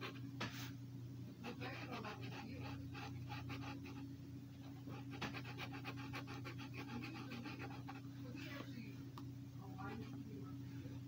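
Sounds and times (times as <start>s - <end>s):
marker scratching on paper: 0.0s - 0.7s, 1.4s - 4.0s, 4.6s - 8.0s.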